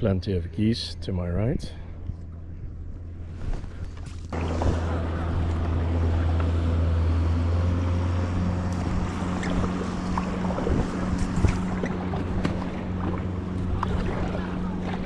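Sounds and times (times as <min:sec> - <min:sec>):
faint water sounds: 0:00.2 - 0:15.0
motor humming: 0:03.9 - 0:15.0.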